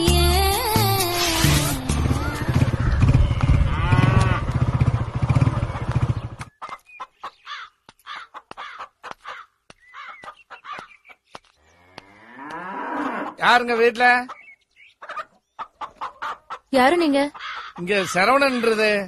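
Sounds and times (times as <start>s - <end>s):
crows cawing: 7.2s - 11.0s, 17.3s - 18.9s.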